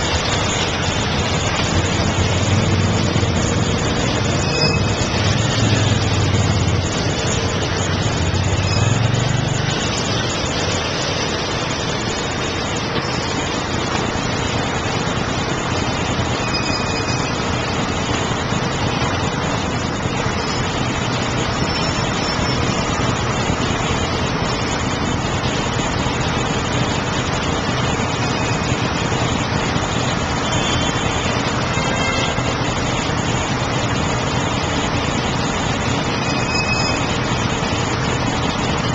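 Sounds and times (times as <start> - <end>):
dense city traffic din: 0.0 - 38.9
motorcycle engine hum: 0.0 - 38.9.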